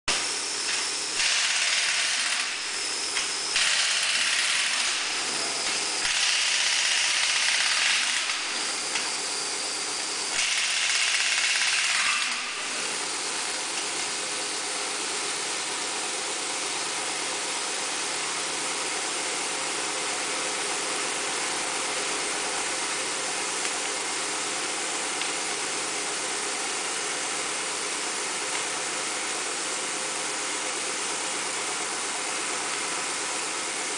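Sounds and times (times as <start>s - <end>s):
pneumatic impact wrench: 0.1s - 15.7s
steady machine hum: 0.1s - 33.9s.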